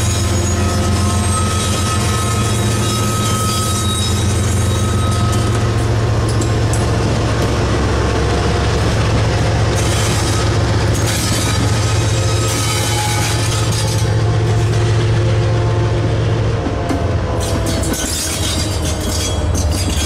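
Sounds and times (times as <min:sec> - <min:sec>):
wheels squealing: 0:00.0 - 0:06.4, 0:09.7 - 0:14.2
locomotive engine drone: 0:00.0 - 0:20.0
wheels rumbling on rail: 0:00.0 - 0:20.0.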